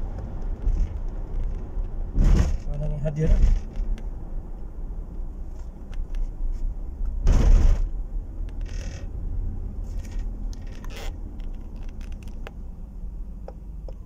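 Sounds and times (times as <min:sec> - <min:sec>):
engine and road rumble: 0:00.0 - 0:14.0.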